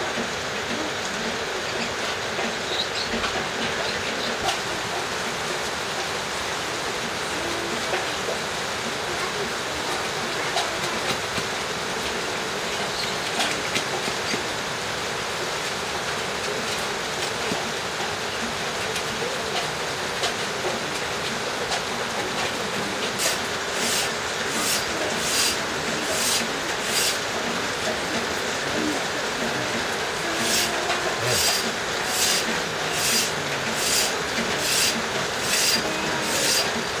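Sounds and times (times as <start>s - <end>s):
steady hiss: 22.7s - 37.0s
knife scraping wood: 23.2s - 27.2s, 30.4s - 36.7s.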